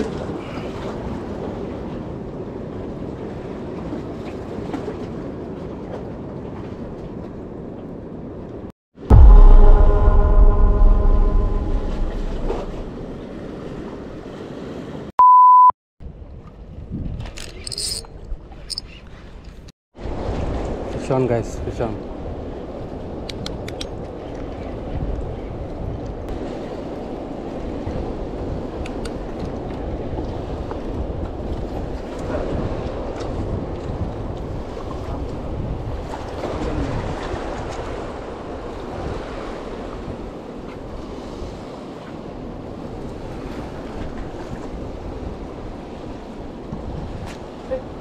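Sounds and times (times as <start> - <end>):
wind: 0.0 - 48.0
steady beep: 9.1 - 12.9, 15.2 - 15.7
cinematic boom with ringing chord: 9.1 - 13.2
sea waves: 9.1 - 15.1, 26.3 - 48.0.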